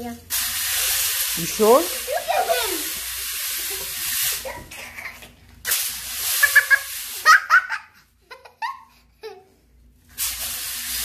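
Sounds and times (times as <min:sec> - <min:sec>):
hiss: 0:00.3 - 0:04.8, 0:05.6 - 0:07.5, 0:10.1 - 0:11.0
young child laughing: 0:01.9 - 0:03.0, 0:06.3 - 0:09.6.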